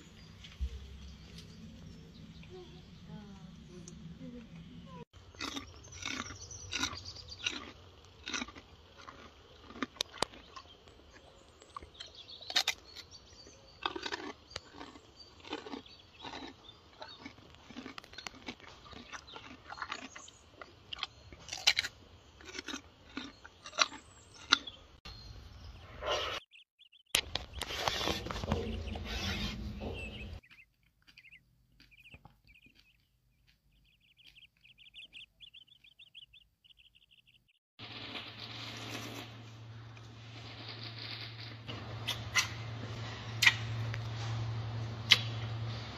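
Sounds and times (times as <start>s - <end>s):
gorilla chewing and crunching food: 5.1s - 25.2s, 27.2s - 37.3s, 40.0s - 45.9s.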